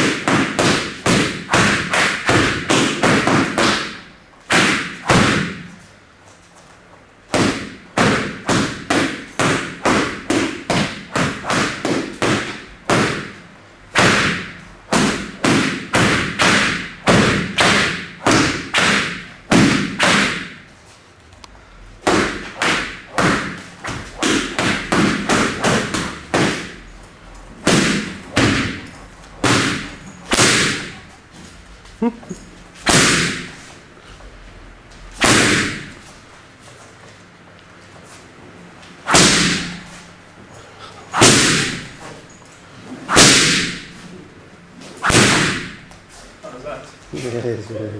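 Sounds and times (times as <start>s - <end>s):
whip smacking punching bag: 0.0s - 5.8s, 7.3s - 20.6s, 22.0s - 26.8s, 27.6s - 31.0s, 32.8s - 33.7s, 35.1s - 36.1s, 39.0s - 40.0s, 41.1s - 42.0s, 43.1s - 44.0s, 45.0s - 46.0s.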